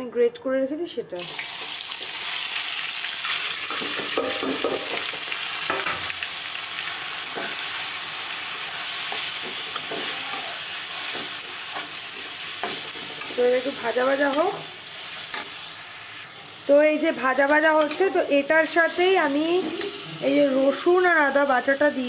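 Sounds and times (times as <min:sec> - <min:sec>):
vegetables sizzling in hot oil: 0:01.2 - 0:22.0
spatula scraping a pan: 0:09.0 - 0:14.7.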